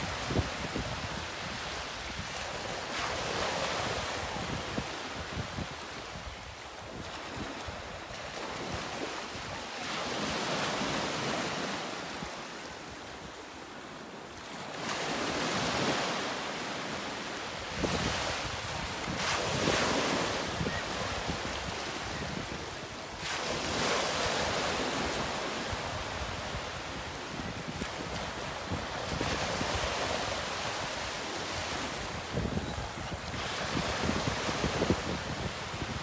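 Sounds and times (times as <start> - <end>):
sea waves washing ashore: 0.0 - 36.0
wind buffeting microphone: 17.7 - 22.9, 24.5 - 36.0.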